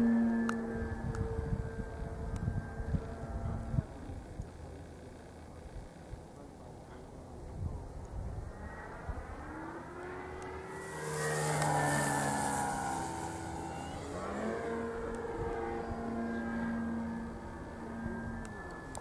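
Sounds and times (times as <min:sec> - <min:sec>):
model airplane motor and propeller drone: 0:00.0 - 0:19.0.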